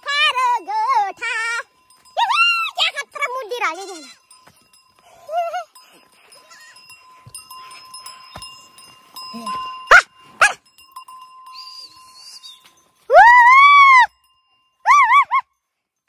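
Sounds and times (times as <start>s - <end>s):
goats bleating: 3.6s - 4.3s, 6.3s - 6.8s.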